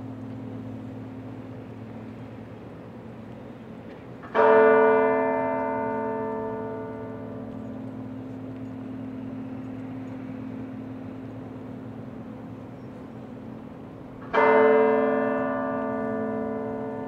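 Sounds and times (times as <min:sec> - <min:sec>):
tower bell tolling: 0:04.3 - 0:12.4, 0:14.2 - 0:17.0.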